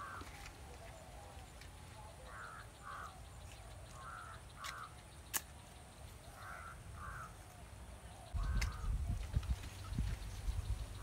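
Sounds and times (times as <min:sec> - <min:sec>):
crows cawing: 0:00.0 - 0:00.5, 0:02.2 - 0:03.3, 0:03.9 - 0:05.0, 0:06.3 - 0:07.6, 0:08.4 - 0:09.0
sharp click: 0:04.6 - 0:05.6.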